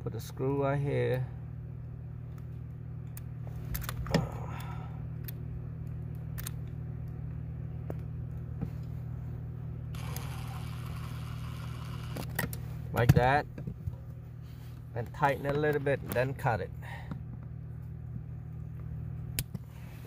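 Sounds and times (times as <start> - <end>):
steady low hum: 0.0 - 20.0
cordless drill driving a screw: 10.0 - 12.3
sharp handling clicks and knocks: 12.1 - 14.0, 15.0 - 17.9.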